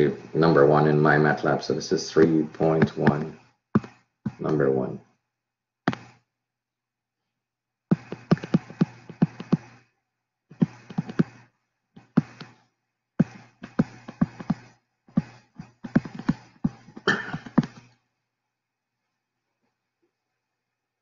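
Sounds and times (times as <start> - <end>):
stylus tapping on tablet screen: 2.2 - 4.7, 5.8 - 6.2, 7.9 - 9.8, 10.5 - 12.6, 13.2 - 18.0.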